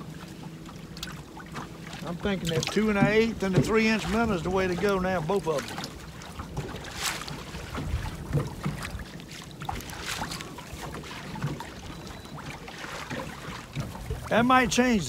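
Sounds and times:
water against hull: 0:00.0 - 0:15.0
wind on microphone: 0:07.6 - 0:09.1.

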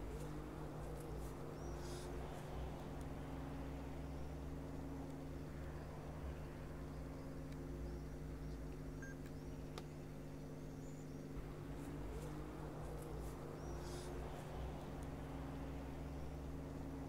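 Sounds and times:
low hum of held tones: 0:00.0 - 0:17.0
faint high chirps: 0:07.9 - 0:09.7.

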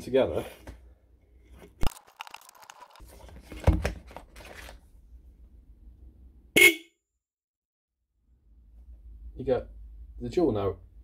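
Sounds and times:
dual-note car horn blast: 0:06.6 - 0:06.9.

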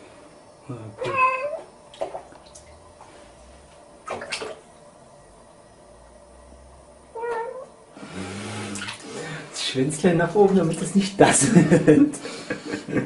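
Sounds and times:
bathwater sloshing: 0:01.1 - 0:05.0, 0:08.6 - 0:09.6
water splash: 0:01.9 - 0:02.8, 0:04.0 - 0:04.7, 0:08.7 - 0:09.2.

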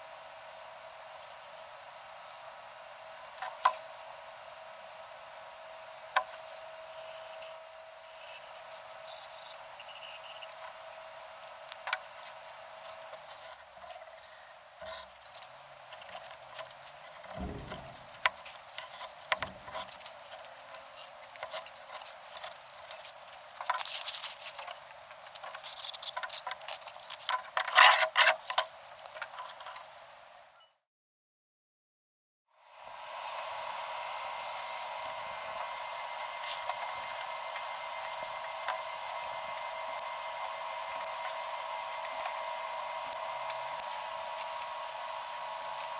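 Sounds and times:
marker scratching on foam: 0:06.3 - 0:11.3.

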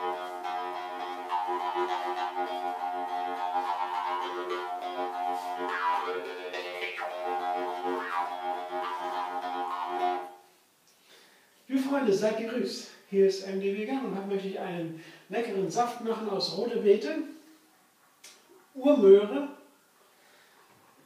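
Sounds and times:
jaw harp drone: 0:00.0 - 0:10.4.

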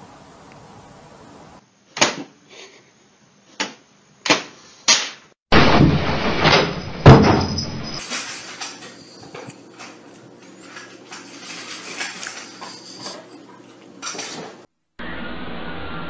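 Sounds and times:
heavy thud: 0:05.5 - 0:08.0.

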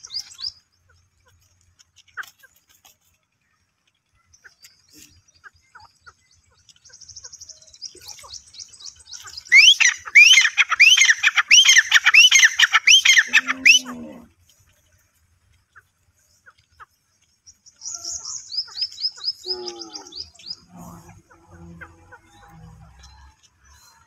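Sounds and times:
bird ringing rising calls: 0:04.4 - 0:14.3, 0:17.5 - 0:24.0
low animal call: 0:09.5 - 0:14.5, 0:19.1 - 0:24.0.

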